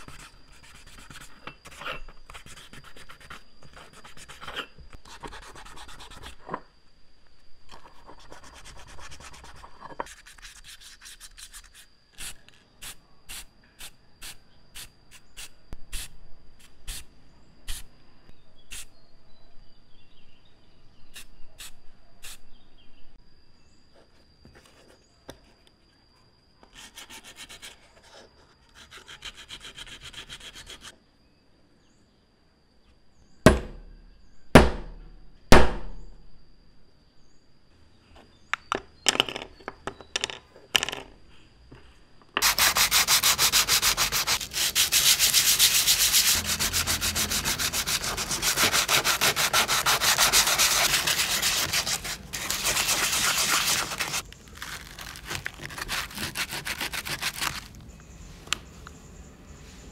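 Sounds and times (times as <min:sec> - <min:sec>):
hand sanding metal: 0:42.4 - 0:54.2, 0:55.2 - 0:57.7.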